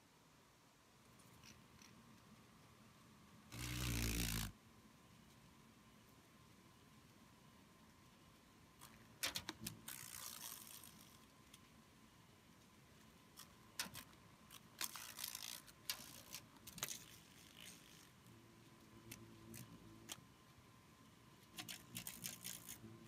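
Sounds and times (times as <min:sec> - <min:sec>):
beetles tapping window screen: 0:08.8 - 0:11.2, 0:21.5 - 0:22.8
scratchy rustle: 0:09.6 - 0:11.6, 0:13.4 - 0:20.2, 0:21.5 - 0:23.0.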